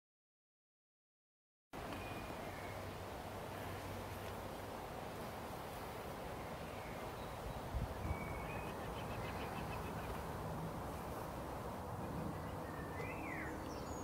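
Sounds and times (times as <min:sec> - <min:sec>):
outdoor background noise: 0:01.8 - 0:14.0
bird chirping: 0:01.9 - 0:02.9, 0:06.4 - 0:10.3, 0:12.1 - 0:14.0.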